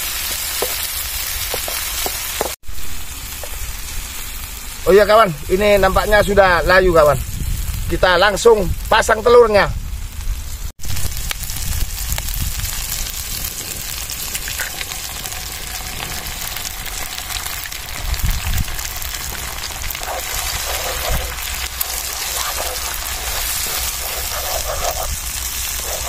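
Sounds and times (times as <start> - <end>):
food sizzling in hot oil: 0.0 - 9.2, 9.8 - 26.0
eggs cracking: 18.6 - 26.0
wooden spatula stirring eggs: 19.4 - 25.1.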